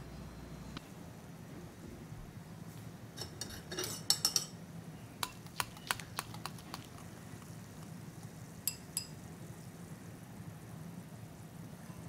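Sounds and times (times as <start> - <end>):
spoon clinking against glass bowl: 3.2 - 4.6, 8.6 - 9.2.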